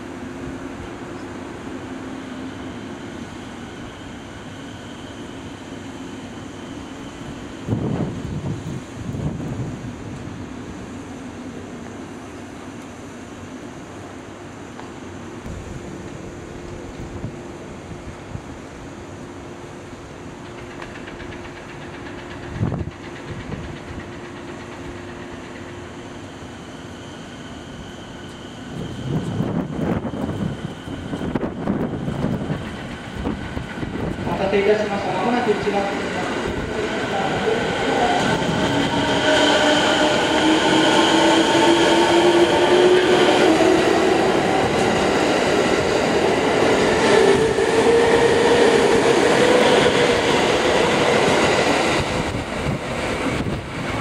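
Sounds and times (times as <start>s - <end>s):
standing train equipment hum: 0.0s - 54.0s
electric train running: 20.4s - 54.0s.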